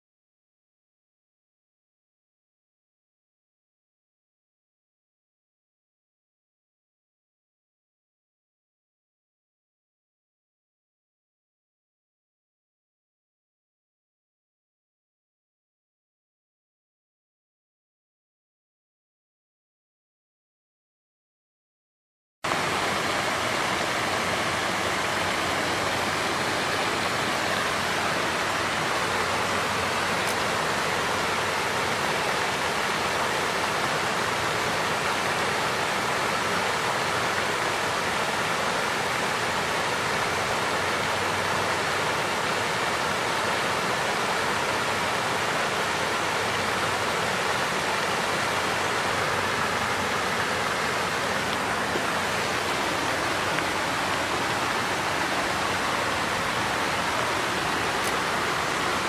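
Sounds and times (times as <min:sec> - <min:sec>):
waterfall rushing: 0:22.5 - 0:59.0.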